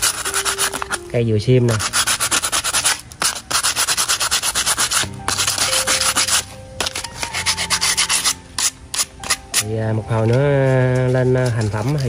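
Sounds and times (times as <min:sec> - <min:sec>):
fast rubbing strokes by hand: 0:00.0 - 0:01.0, 0:01.6 - 0:06.5, 0:07.1 - 0:09.8.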